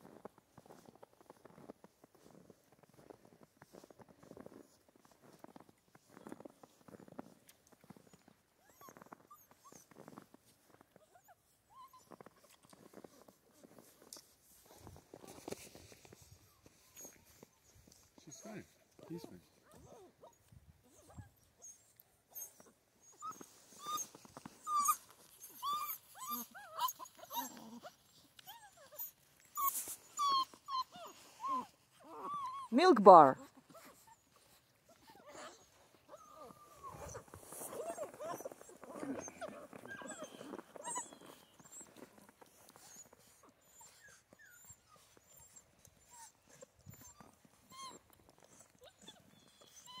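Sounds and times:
puppies whimpering: 18.3 - 32.8, 33.7 - 50.0
puppies squeaking: 19.1 - 32.8, 33.8 - 50.0.

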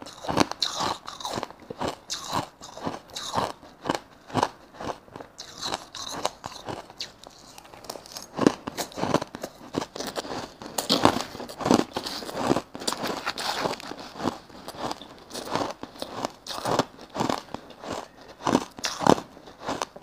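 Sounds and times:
ice crunching between teeth: 0.0 - 20.0
metal spoon digging through ice: 5.4 - 17.3.

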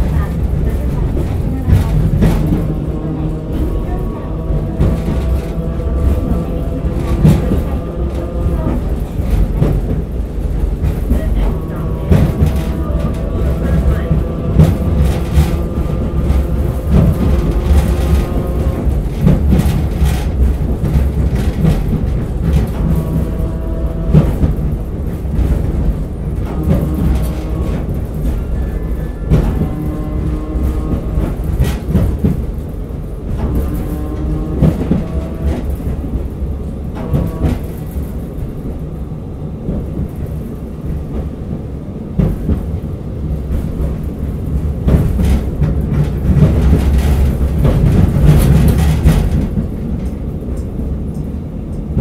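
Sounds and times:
running gear tones: 0.0 - 32.5
tram rumbling: 0.0 - 52.0.

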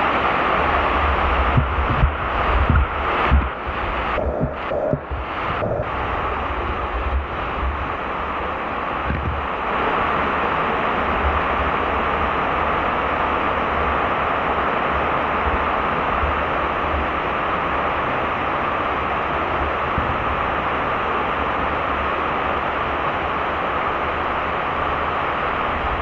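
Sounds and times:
water rushing over spillway: 0.0 - 26.0
wind buffeting microphone: 0.7 - 8.2, 9.0 - 9.6.

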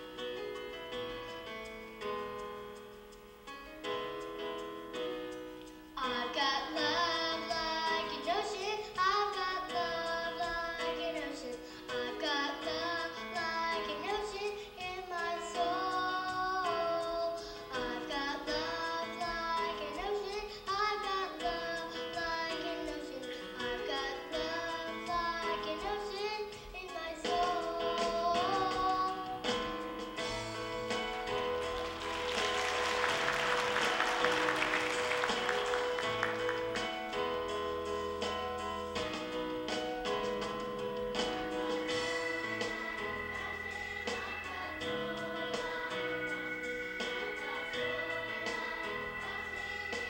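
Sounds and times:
instrumental accompaniment: 0.0 - 50.0
children's choir singing: 9.3 - 37.2, 41.2 - 50.0.

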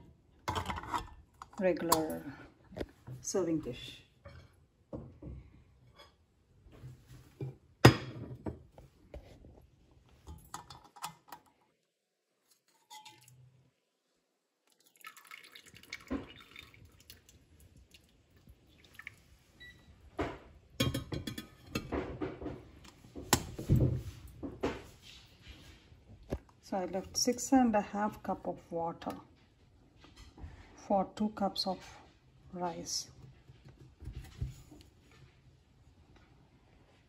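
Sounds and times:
metal container clattering on dishes: 0.5 - 2.1, 10.2 - 11.5, 12.6 - 13.4.

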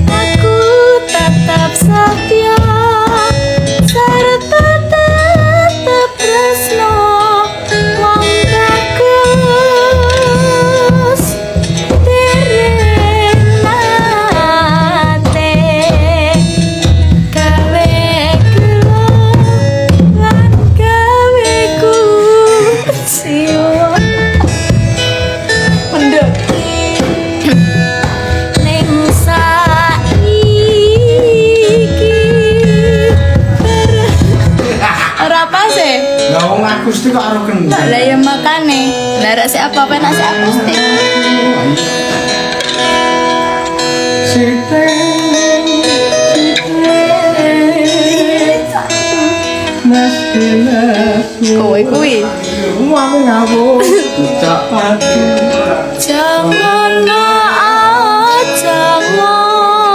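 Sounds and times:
hand drum beating: 0.0 - 36.6
live band playing: 0.0 - 59.9
plucked strings: 0.0 - 59.9
wavering vibrato melody: 37.6 - 57.8.

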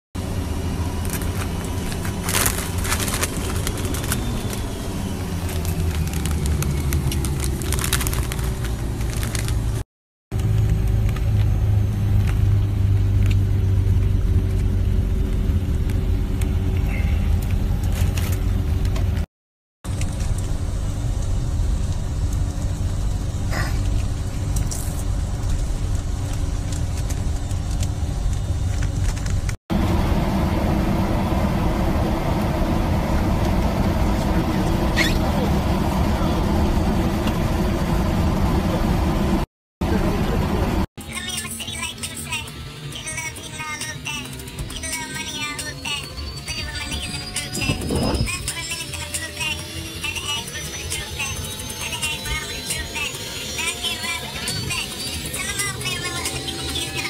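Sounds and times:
jet cabin rumble and hum: 0.2 - 9.8, 10.4 - 19.3, 19.9 - 40.9, 51.9 - 57.0
crackles and rustles: 0.9 - 4.8, 5.4 - 9.8, 19.9 - 29.6.

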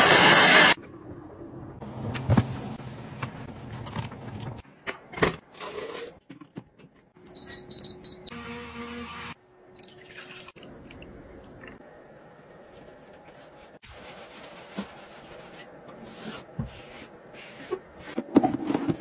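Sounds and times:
blender motor: 0.0 - 0.8
liquid pouring: 9.8 - 11.1.

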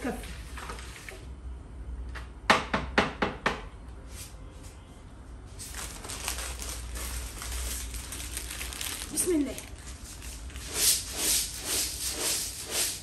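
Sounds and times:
plastic bag crinkling: 5.6 - 10.8.

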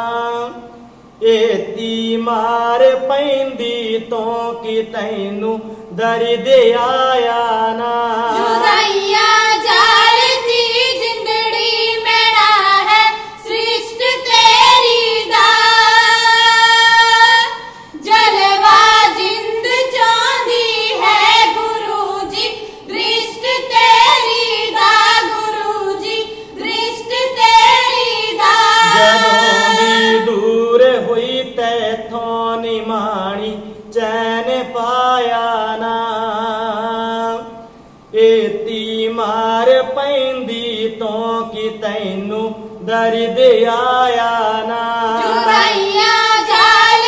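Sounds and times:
women singing in high voices: 8.3 - 30.4, 45.1 - 47.0.

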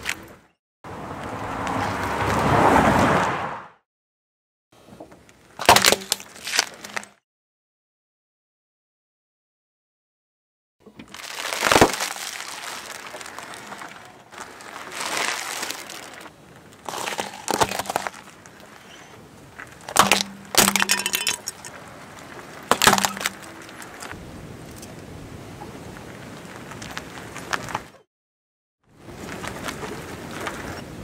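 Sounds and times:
tyre crushing objects: 5.6 - 7.2, 10.9 - 18.9, 19.6 - 24.2
plastic cracking: 10.9 - 18.7, 19.6 - 21.8, 22.6 - 24.1.

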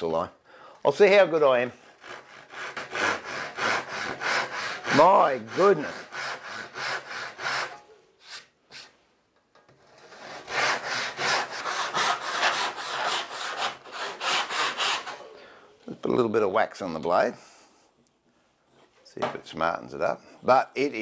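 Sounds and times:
handsaw cutting wood: 1.9 - 8.9, 10.0 - 15.2.

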